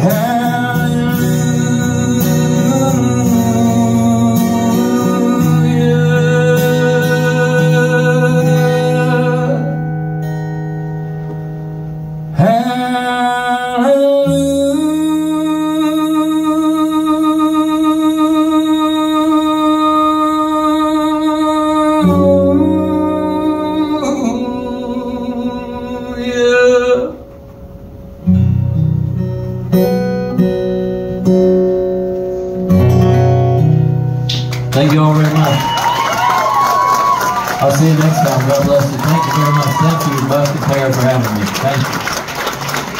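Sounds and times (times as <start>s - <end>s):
man singing: 0.0s - 9.9s, 12.3s - 27.3s
acoustic guitar strumming: 0.0s - 42.9s.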